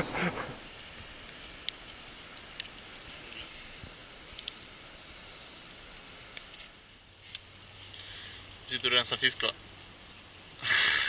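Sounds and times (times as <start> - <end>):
campfire crackling: 0.0 - 11.0
fire popping: 0.0 - 11.0.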